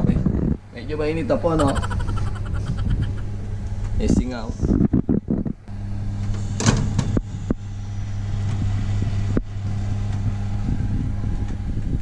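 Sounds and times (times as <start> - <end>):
oven fan hum: 0.0 - 12.0.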